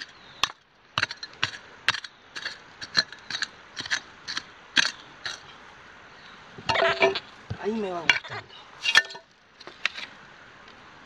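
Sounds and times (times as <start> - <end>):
digging tool scraping gravel: 1.0 - 5.5.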